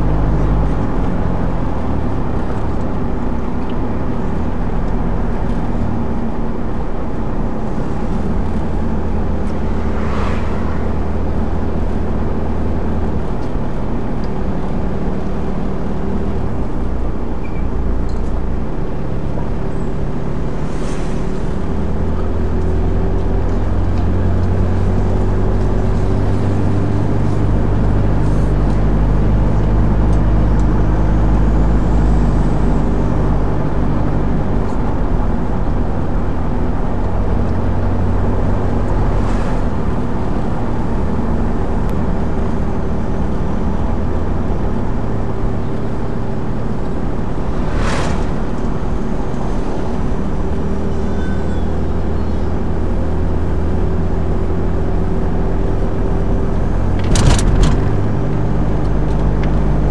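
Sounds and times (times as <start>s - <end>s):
car engine and road drone: 0.0s - 59.9s
brief swishes: 9.6s - 11.1s, 47.4s - 49.7s.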